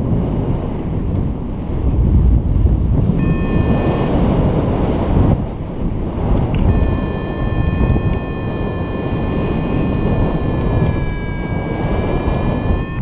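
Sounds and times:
wind buffeting microphone: 0:00.0 - 0:13.0
steady electronic tone: 0:01.8 - 0:04.9, 0:06.6 - 0:13.0.

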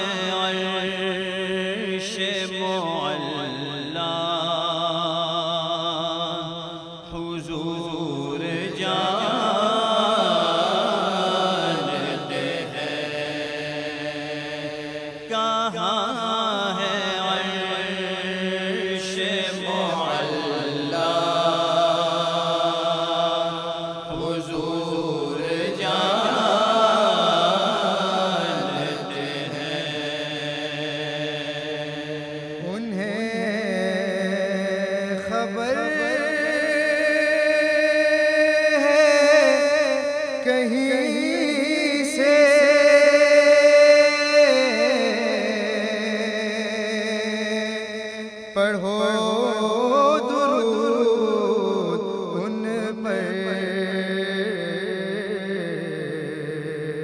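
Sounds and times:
men chanting: 0:07.2 - 0:34.2.

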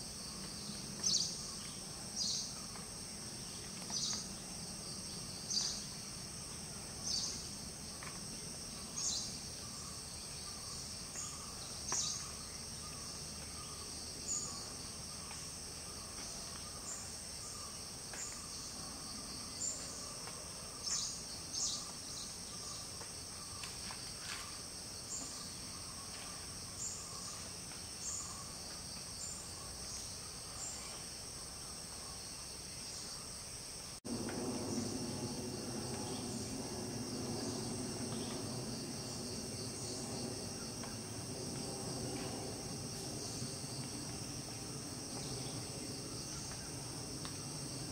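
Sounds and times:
insect chorus chirping: 0:00.0 - 0:47.9
low background noise: 0:00.0 - 0:47.9
pulsing insect trill: 0:34.0 - 0:47.9.

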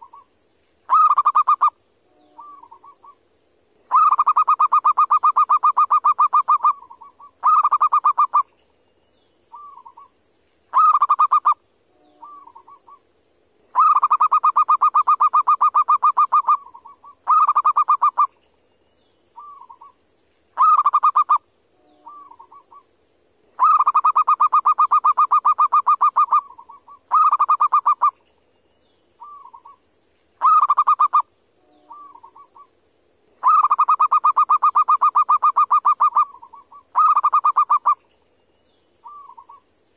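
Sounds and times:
dove trilled cooing: 0:00.0 - 0:00.3, 0:00.9 - 0:03.2, 0:03.9 - 0:08.5, 0:09.5 - 0:10.1, 0:10.7 - 0:13.0, 0:13.7 - 0:18.3, 0:19.4 - 0:20.0, 0:20.6 - 0:22.9, 0:23.6 - 0:28.2, 0:29.2 - 0:29.8, 0:30.4 - 0:32.7, 0:33.4 - 0:38.0, 0:39.0 - 0:39.6.

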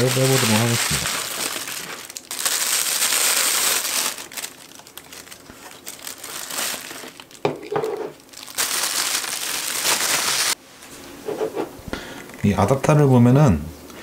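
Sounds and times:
plastic bag and bubble wrap crinkling: 0:00.0 - 0:10.6.

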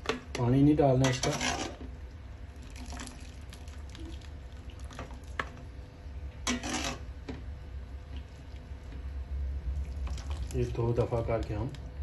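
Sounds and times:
ladle scraping in steel pot: 0:01.0 - 0:01.9, 0:06.4 - 0:07.1.

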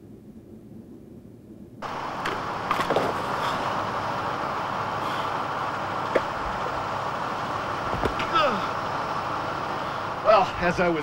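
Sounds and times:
faint low rumble: 0:00.0 - 0:10.9
construction machinery noise: 0:01.8 - 0:11.0
knocks and clatters: 0:02.2 - 0:03.4.

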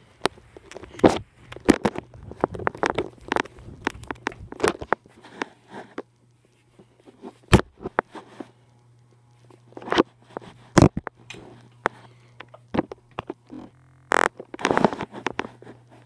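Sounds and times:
phone handling rustling: 0:00.0 - 0:06.1
steady low hum: 0:00.0 - 0:16.0.

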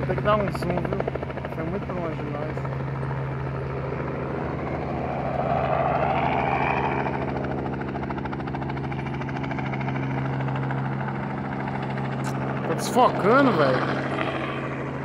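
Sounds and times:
helicopter hovering: 0:00.0 - 0:15.0.

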